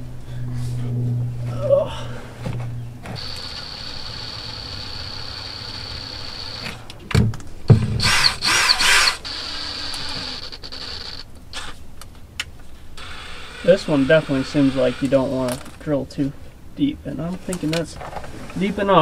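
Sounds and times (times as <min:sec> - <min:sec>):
power drill whining: 0:03.1 - 0:06.9, 0:08.0 - 0:11.8, 0:13.0 - 0:15.7
rough grinding: 0:07.7 - 0:11.8.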